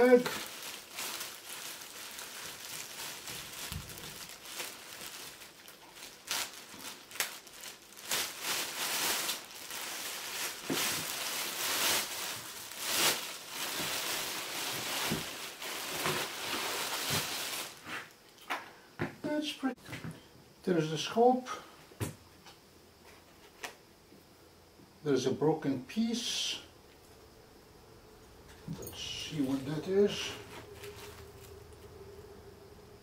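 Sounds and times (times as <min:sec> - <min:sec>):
plastic bag crinkling: 0:00.0 - 0:18.1, 0:28.7 - 0:32.1.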